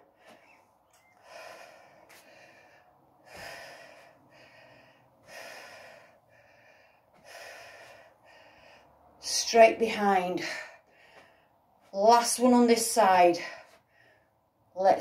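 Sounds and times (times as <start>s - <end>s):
woman breathing hard: 1.2s - 9.2s, 10.4s - 11.8s, 13.4s - 14.6s.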